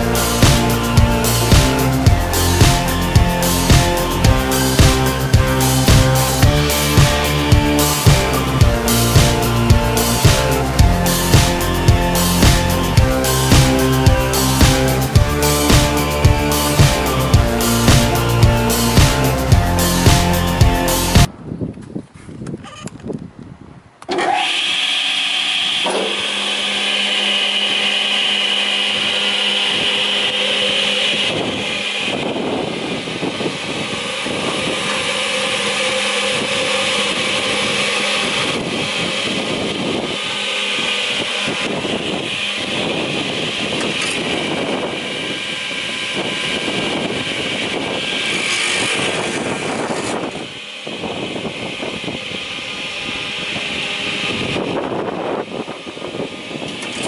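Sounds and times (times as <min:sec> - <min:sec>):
machine motors humming and whining: 0:00.0 - 0:21.3, 0:24.0 - 0:57.0.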